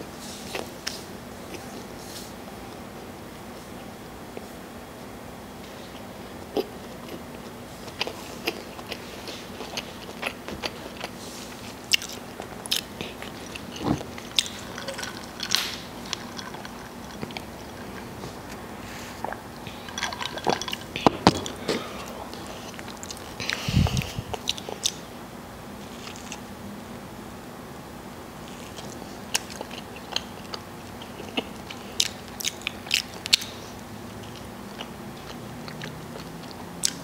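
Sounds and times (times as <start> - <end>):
wet chewing: 5.9 - 25.0, 28.5 - 37.0.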